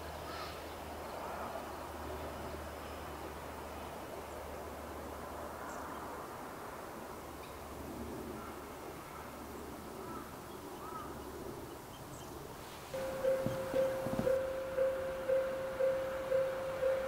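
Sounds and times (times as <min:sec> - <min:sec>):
knocks: 0:13.0 - 0:14.6
level crossing warning bell: 0:13.0 - 0:17.0.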